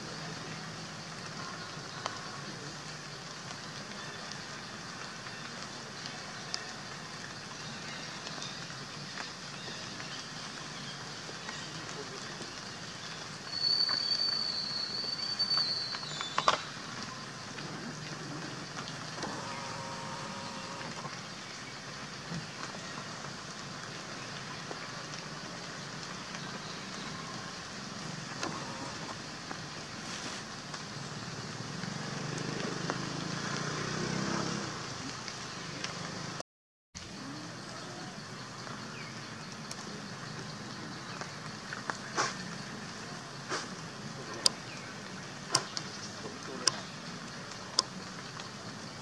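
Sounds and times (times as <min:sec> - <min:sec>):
outdoor background noise: 0:00.0 - 0:36.4, 0:37.0 - 0:49.0
motor vehicle passing: 0:31.5 - 0:36.4.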